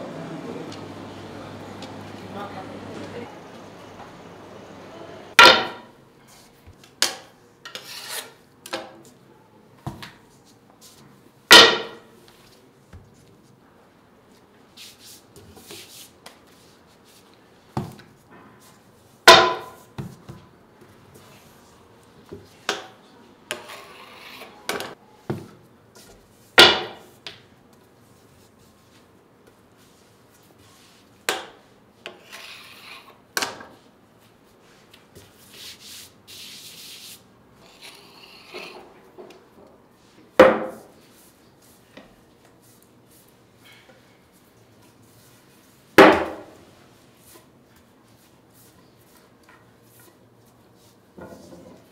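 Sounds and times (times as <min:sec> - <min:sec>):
dough rubbing and rustling: 0:14.2 - 0:17.7, 0:33.8 - 0:38.5.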